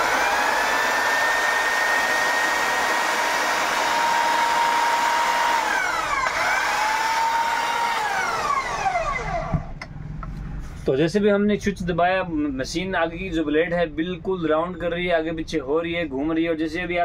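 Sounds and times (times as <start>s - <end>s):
electric hedge trimmer running: 0.0s - 9.7s.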